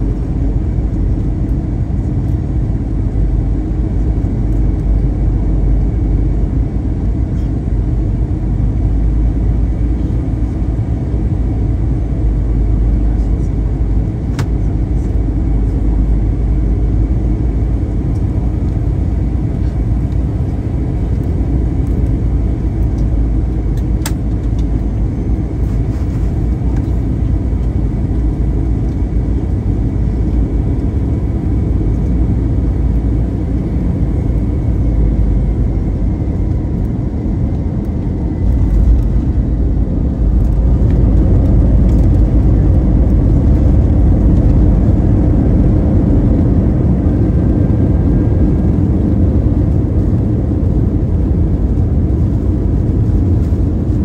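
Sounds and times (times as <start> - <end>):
airplane cabin rumble: 0.0 - 54.0.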